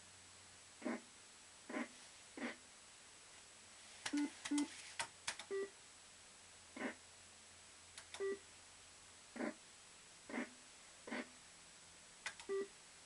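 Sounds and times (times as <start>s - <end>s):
short electronic beeps: 5.5s - 5.7s, 8.2s - 8.4s, 12.4s - 12.7s.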